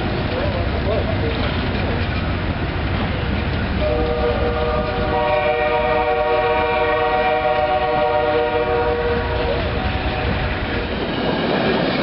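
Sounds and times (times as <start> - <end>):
train cars rumbling on rails: 0.0 - 12.0
train air horn chord: 3.8 - 10.5.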